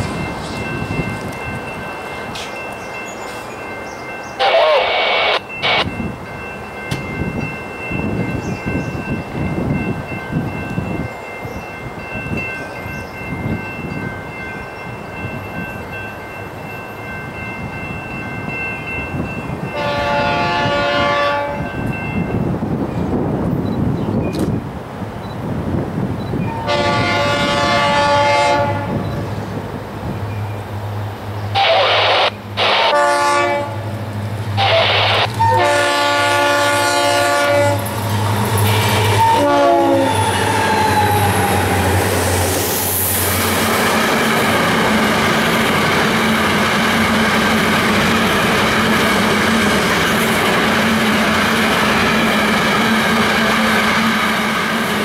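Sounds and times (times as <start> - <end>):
locomotive engines droning: 0.0 - 25.4, 26.0 - 55.0
train wheels rumbling on rail: 0.0 - 55.0
train air horn blasts: 19.8 - 21.7, 26.6 - 29.0, 31.6 - 33.9, 34.6 - 38.0, 39.0 - 40.2.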